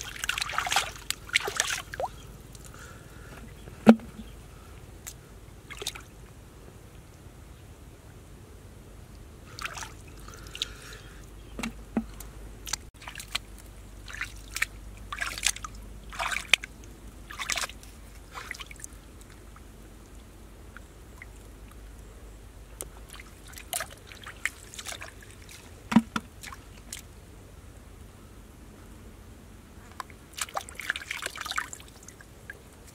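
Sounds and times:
splashing in shallow muddy water: 0.0s - 4.4s, 5.0s - 6.2s, 9.4s - 21.7s, 22.8s - 27.4s, 30.0s - 32.9s.

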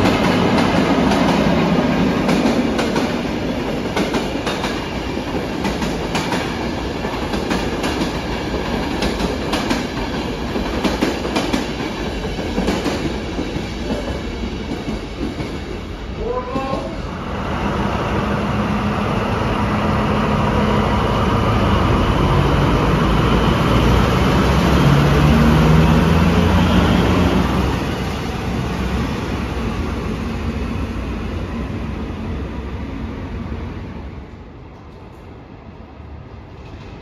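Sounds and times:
diesel locomotive passing: 0.0s - 37.0s.

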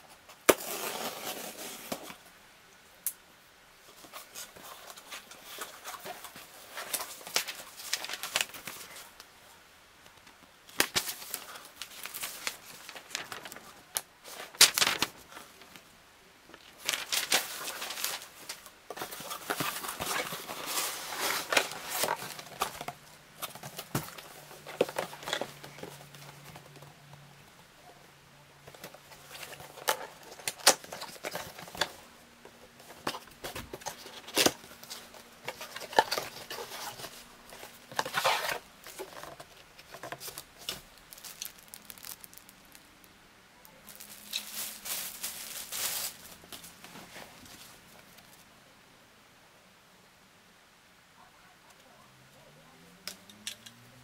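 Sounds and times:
paper rustling: 3.9s - 9.1s, 10.7s - 15.8s, 16.6s - 26.9s, 32.8s - 42.8s, 43.7s - 48.3s
plastic bag crinkling: 10.8s - 15.8s, 16.6s - 26.3s, 33.0s - 46.8s.

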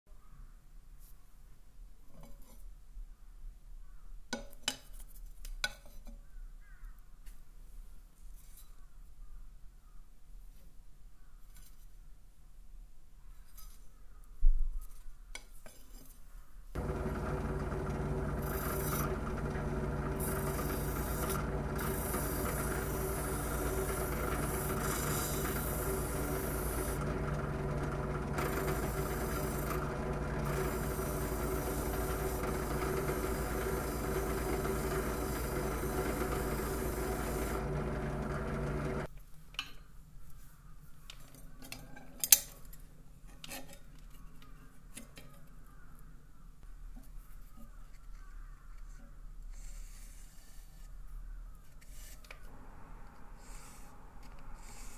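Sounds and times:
abrasive wheel scrubbing steel: 16.8s - 39.1s
drill press motor hum: 16.8s - 39.1s, 52.5s - 54.9s.

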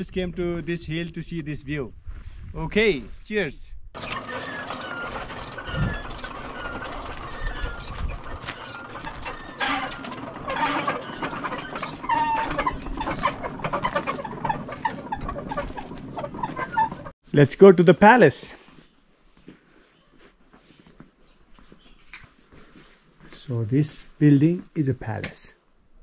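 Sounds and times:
prayer wheels creaking and clicking: 4.0s - 17.2s.

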